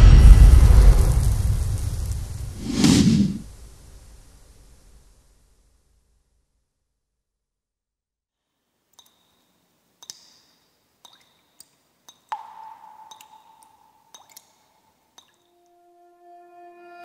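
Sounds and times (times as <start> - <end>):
faint dripping clicks: 8.9 - 15.5.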